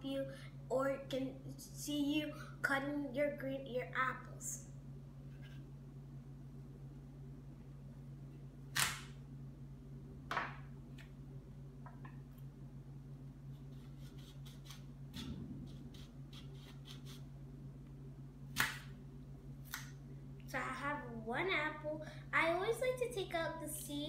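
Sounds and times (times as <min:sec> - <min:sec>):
low hum: 0:00.0 - 0:24.0
knife cutting an apple: 0:13.5 - 0:17.3, 0:18.5 - 0:19.0.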